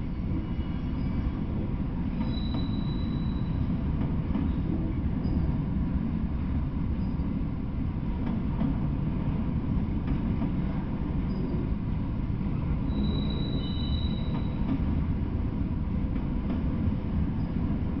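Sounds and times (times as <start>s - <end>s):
train wheels rumbling on rail: 0.0s - 18.0s
high-pitched wheel squeal: 2.2s - 3.6s, 12.9s - 14.6s.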